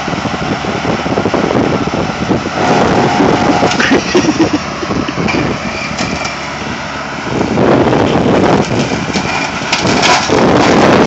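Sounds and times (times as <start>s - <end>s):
riding lawn mower grinding bush: 0.0s - 11.0s
cracking branches: 8.5s - 11.0s.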